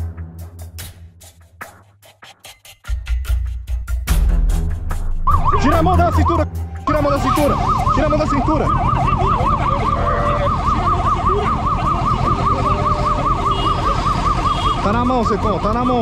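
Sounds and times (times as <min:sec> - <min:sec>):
police siren yelping: 0:05.2 - 0:15.4.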